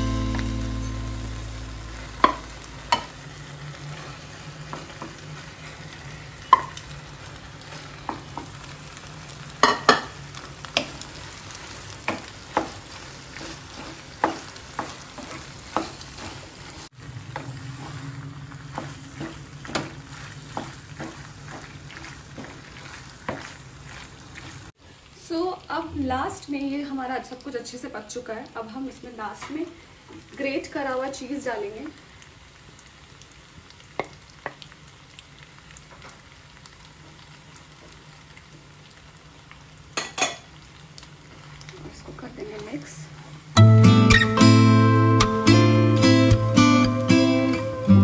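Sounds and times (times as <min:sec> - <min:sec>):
pasta sizzling: 0:00.0 - 0:48.0
spatula scraping a pan: 0:11.6 - 0:16.8, 0:17.4 - 0:24.7.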